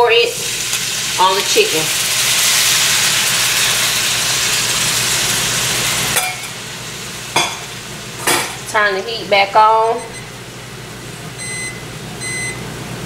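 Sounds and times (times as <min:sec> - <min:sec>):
glaze sizzling in a skillet: 0:00.0 - 0:09.0.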